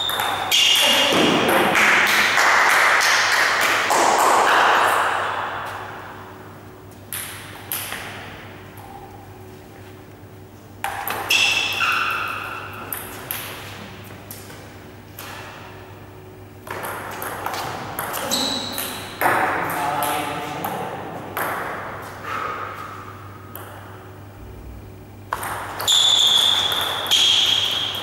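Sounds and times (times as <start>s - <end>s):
table tennis ball bouncing: 0.0s - 6.0s, 7.1s - 9.0s, 10.8s - 13.8s, 16.6s - 24.1s, 25.3s - 28.0s.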